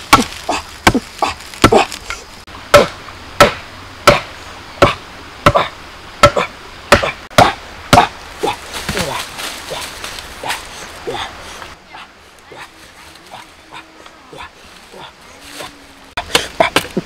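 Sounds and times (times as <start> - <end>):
hollow knocks of bamboo mallet: 2.7 - 8.1.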